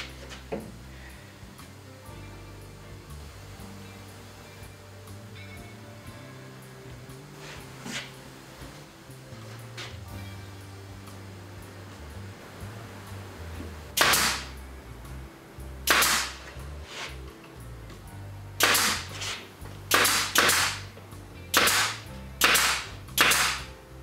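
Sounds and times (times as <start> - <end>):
exhaust air hiss: 0.0 - 24.0
pin nailer pops: 14.0 - 14.5, 15.9 - 16.4, 18.6 - 20.9, 21.5 - 23.7.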